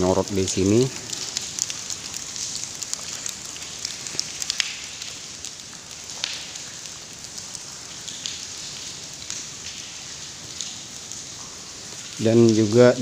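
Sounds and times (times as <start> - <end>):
steady hiss: 0.0 - 13.0
faint clicks and ticks: 0.2 - 7.5.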